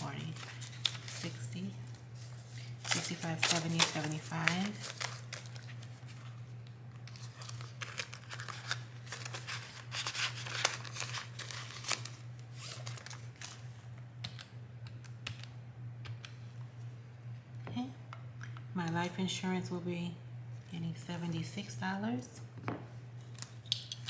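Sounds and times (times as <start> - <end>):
paper banknotes rustling: 0.0 - 6.4, 7.0 - 13.6
steady low hum: 0.0 - 24.0
plastic pockets crinkling: 0.1 - 13.6.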